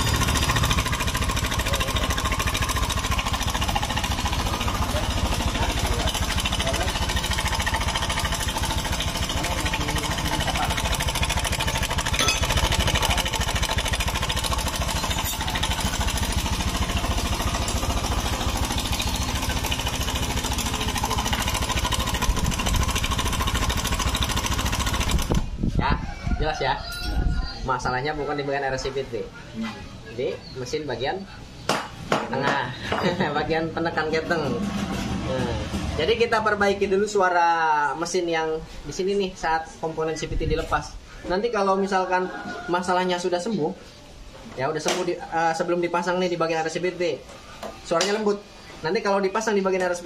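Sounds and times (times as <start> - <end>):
scooter engine clattering: 0.0 - 25.5, 34.0 - 36.9.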